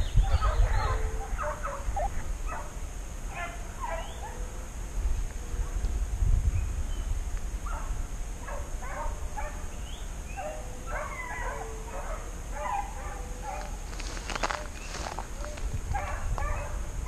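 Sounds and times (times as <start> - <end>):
hounds baying and yelping: 0.2 - 2.7, 3.3 - 4.5, 7.7 - 9.6, 10.4 - 16.8.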